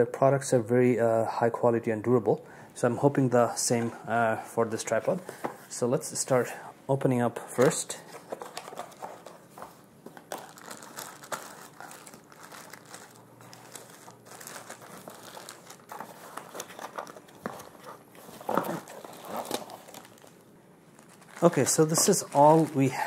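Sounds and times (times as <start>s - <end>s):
cardboard box rustling: 8.1s - 20.3s
plastic bags crinkling: 8.2s - 23.0s.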